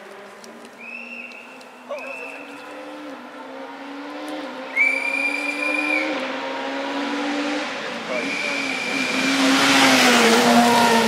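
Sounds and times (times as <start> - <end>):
rally car engine revving: 2.6 - 11.0
long high whistle blast: 4.7 - 6.2.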